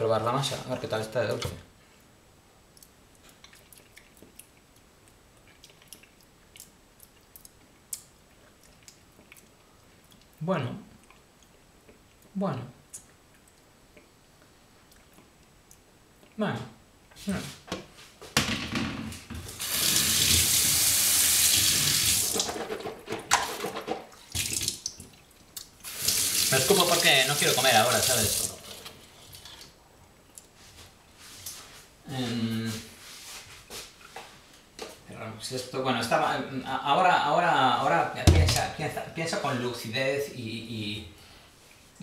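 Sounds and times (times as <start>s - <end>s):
lip smacks and mouth clicks: 2.7s - 10.4s, 11.0s - 16.4s.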